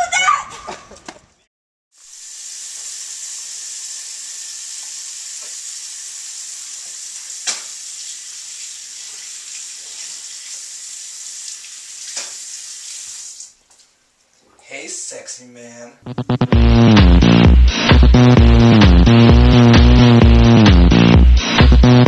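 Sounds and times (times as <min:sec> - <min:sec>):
faucet running into sink: 0:02.0 - 0:13.5.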